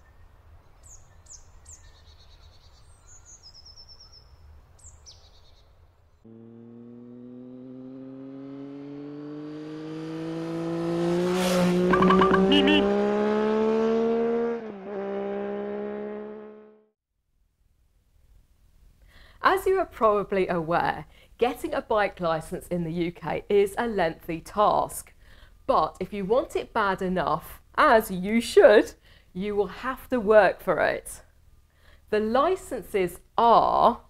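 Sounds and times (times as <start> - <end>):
birds chirping: 0.0 - 6.2
vehicle engine accelerating: 6.2 - 16.9.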